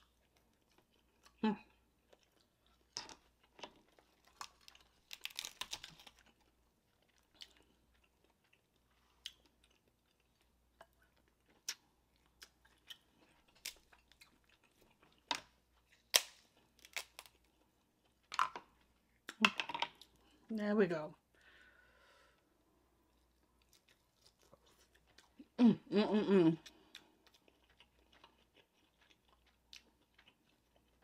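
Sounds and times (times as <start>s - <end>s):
close chewing of crab meat: 0.0s - 17.8s, 26.6s - 31.0s
crab shell cracking: 4.3s - 6.2s.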